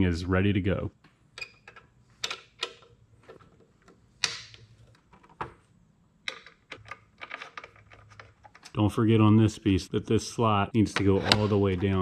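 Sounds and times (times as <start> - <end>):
metal parts clicking and clacking: 6.3 - 8.8.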